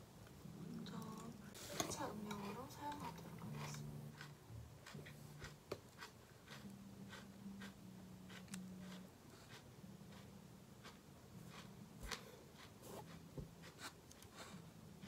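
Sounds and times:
crunching of salad being chewed: 0:02.3 - 0:14.2.

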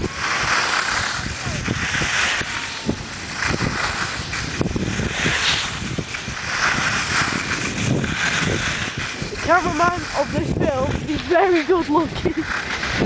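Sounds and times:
skis hissing on snow: 0:00.0 - 0:13.0
wind buffeting microphone: 0:00.0 - 0:13.0.

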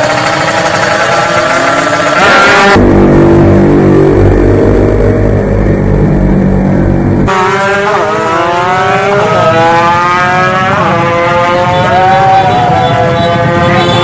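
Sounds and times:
racing motorcycles revving: 0:00.0 - 0:14.0
deep muffled engine: 0:00.1 - 0:07.8.

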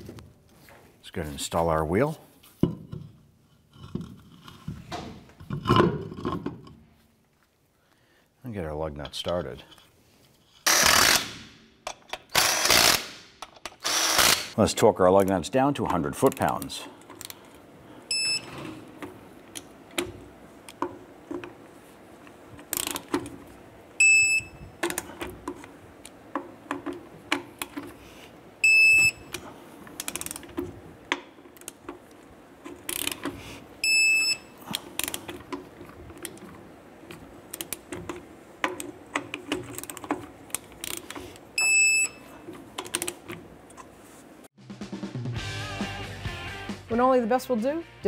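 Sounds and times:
torque wrench ratcheting and clicking: 0:12.3 - 0:13.2, 0:22.7 - 0:23.1, 0:30.0 - 0:30.4, 0:32.9 - 0:33.3.

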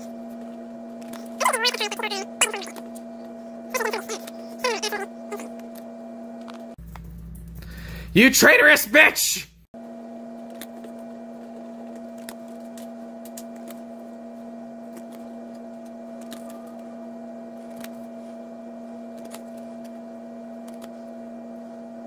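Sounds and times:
hum of two held tones: 0:00.0 - 0:08.2, 0:09.5 - 0:22.0
trading cards clicking: 0:20.6 - 0:20.9.

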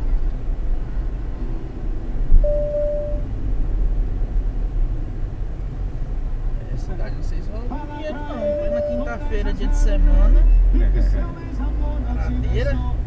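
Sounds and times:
car engine and road rumble: 0:00.0 - 0:13.0
short steady beep: 0:02.4 - 0:03.2, 0:08.3 - 0:09.1.

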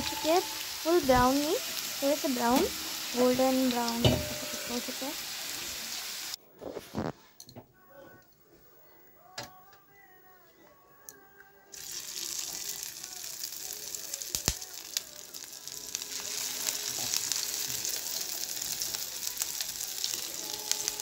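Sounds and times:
food sizzling in hot oil: 0:00.0 - 0:06.4, 0:11.8 - 0:21.0.

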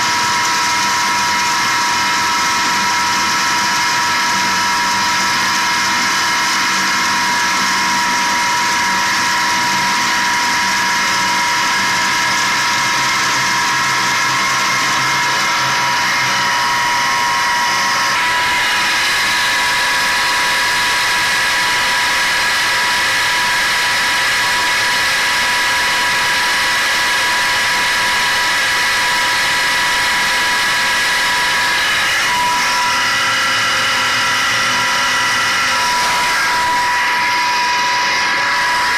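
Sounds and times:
sand pump motor whining: 0:00.0 - 0:38.9.

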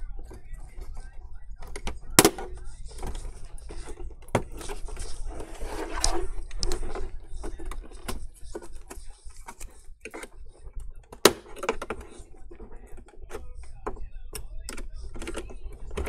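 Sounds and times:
scraping rustle: 0:02.8 - 0:10.6.

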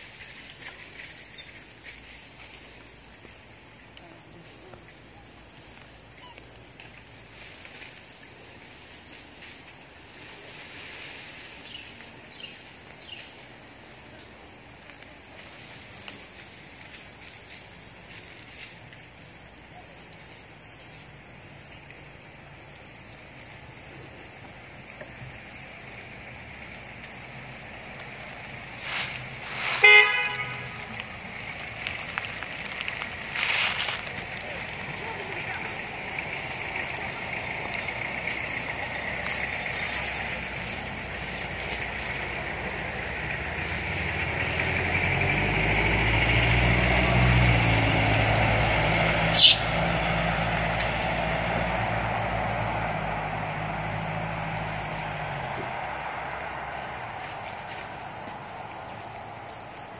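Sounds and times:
insects droning: 0:00.0 - 0:59.9
loud steady-pitched toot: 0:29.8 - 0:30.9.

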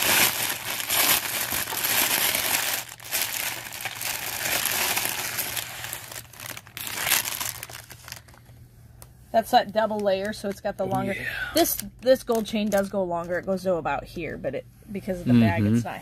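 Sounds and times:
plastic bag crinkling: 0:00.0 - 0:08.6, 0:11.6 - 0:13.0.

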